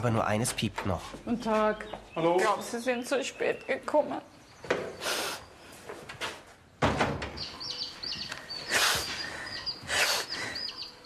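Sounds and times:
chick peeping: 0:07.4 - 0:11.0.

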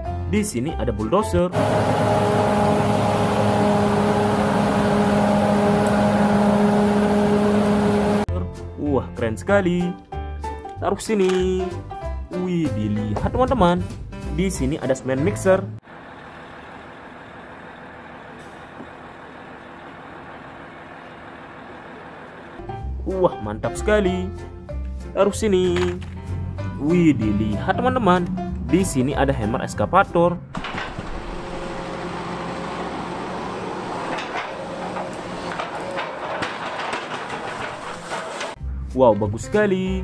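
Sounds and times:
concrete mixer truck running: 0:01.5 - 0:08.3, 0:15.8 - 0:22.6, 0:30.6 - 0:38.6
excavator engine and hydraulics: 0:01.5 - 0:08.3, 0:15.8 - 0:22.8, 0:25.8 - 0:38.6
machine clanks and rattles: 0:30.5 - 0:38.6.

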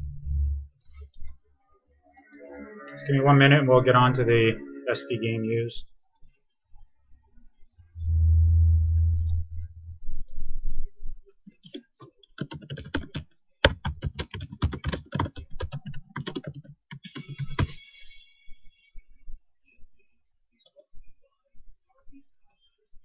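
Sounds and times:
low rumble: 0:00.0 - 0:00.7, 0:07.9 - 0:11.2
typing on keyboard: 0:11.6 - 0:17.8.

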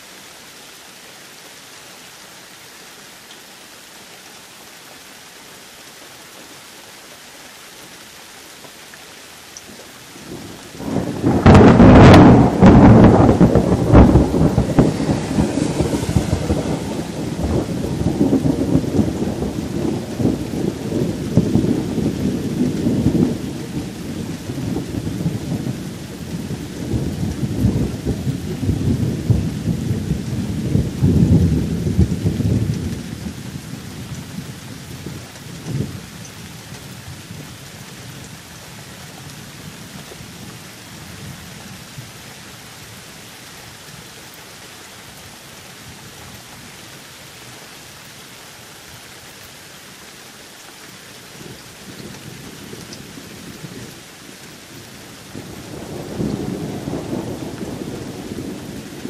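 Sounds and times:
steady rain: 0:00.0 - 0:59.0
rolling thunder: 0:10.2 - 0:36.1, 0:55.3 - 0:59.0.

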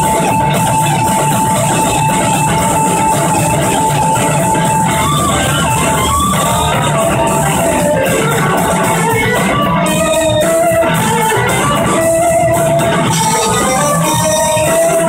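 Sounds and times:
electric guitar lead lines: 0:00.0 - 0:15.0
live band music: 0:00.0 - 0:15.0.

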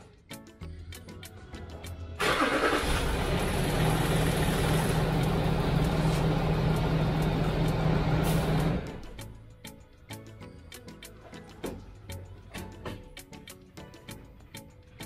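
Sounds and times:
diesel engine starting and idling: 0:02.2 - 0:09.2.

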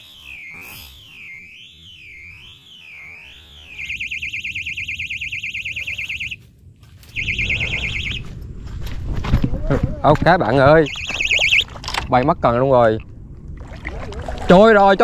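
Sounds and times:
bite alarm warbling tone: 0:00.0 - 0:06.4, 0:07.1 - 0:08.2, 0:10.5 - 0:11.6.

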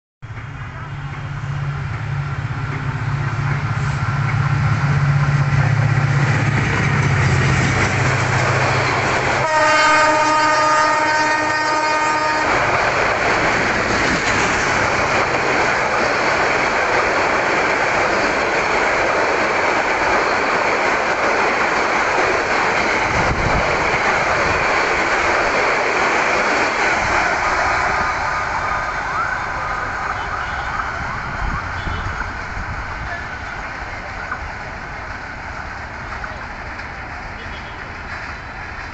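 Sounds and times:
locomotive engine drone: 0:00.2 - 0:38.9
train horn blast: 0:09.4 - 0:12.7.

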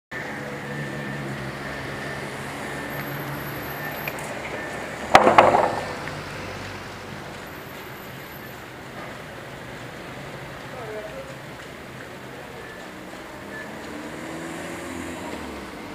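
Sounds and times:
wooden plank dropped on stone: 0:05.1 - 0:06.0.

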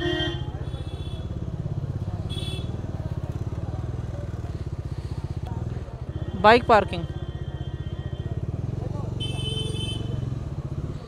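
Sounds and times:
vehicle horn beeps: 0:00.0 - 0:01.3, 0:02.2 - 0:02.8, 0:06.1 - 0:08.4, 0:09.1 - 0:10.3
motorcycle engine puttering: 0:00.0 - 0:11.0.

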